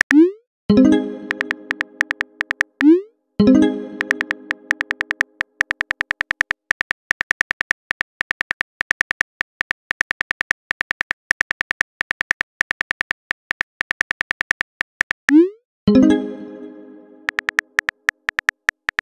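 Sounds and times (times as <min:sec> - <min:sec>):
keyboard tap clicks: 0:01.3 - 0:02.9, 0:04.0 - 0:15.2, 0:17.3 - 0:19.0.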